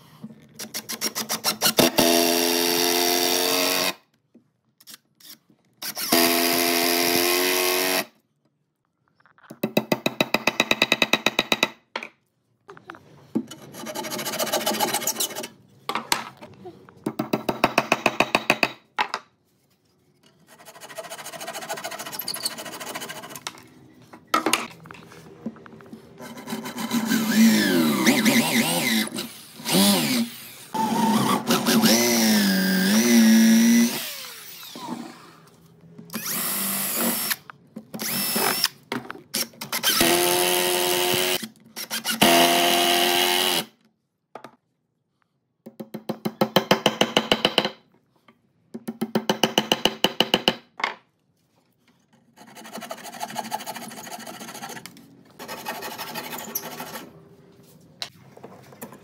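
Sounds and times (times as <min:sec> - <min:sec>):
electric drill whining: 0:27.2 - 0:35.2.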